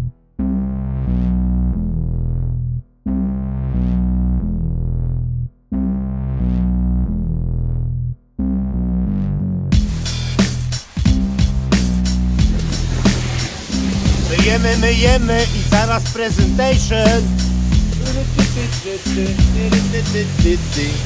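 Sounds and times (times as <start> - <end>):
background music sustained chords: 9.8 - 21.0.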